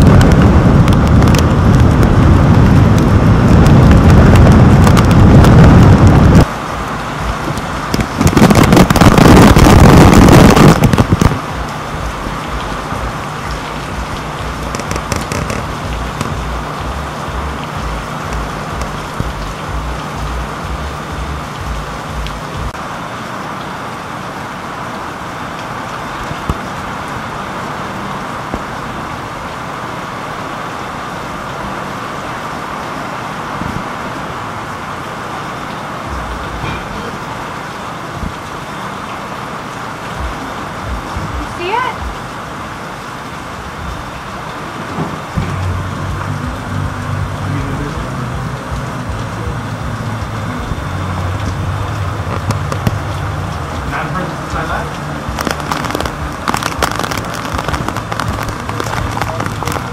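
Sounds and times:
wind gusting on microphone: 0:00.0 - 0:22.8, 0:45.2 - 0:59.9
rain crackling on camera housing: 0:00.0 - 0:59.9
soft low thumps: 0:07.2 - 0:22.8, 0:40.2 - 0:42.2, 0:55.0 - 0:59.9.

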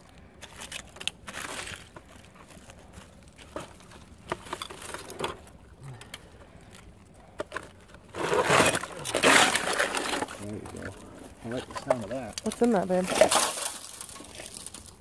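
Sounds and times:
hand scraping through soil: 0:08.0 - 0:15.0
leaves rustling: 0:08.1 - 0:15.0.

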